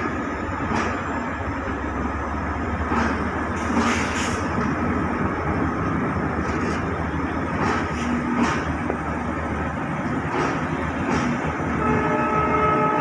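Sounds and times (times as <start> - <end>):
train wheels clacking: 0.0 - 1.3, 2.7 - 4.8, 6.4 - 9.0, 10.0 - 11.8
train coaches rumbling past: 0.0 - 13.0.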